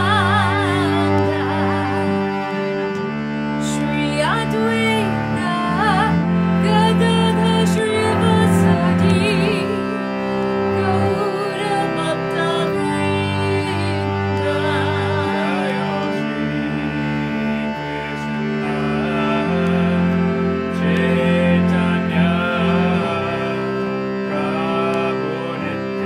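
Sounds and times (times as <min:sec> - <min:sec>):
woman singing: 0:00.0 - 0:02.4, 0:03.6 - 0:10.1, 0:10.7 - 0:16.2
cello bowing low notes: 0:00.0 - 0:26.0
harmonium chords: 0:00.0 - 0:26.0.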